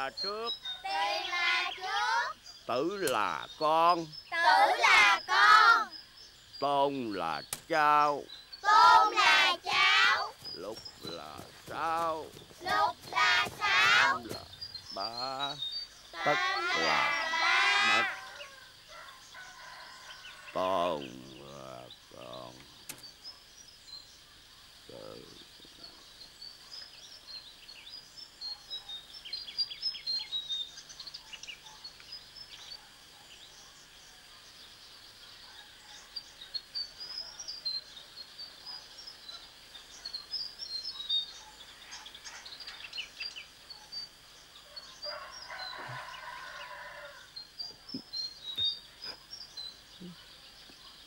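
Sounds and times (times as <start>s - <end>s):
small birds chirping: 0.0s - 51.0s.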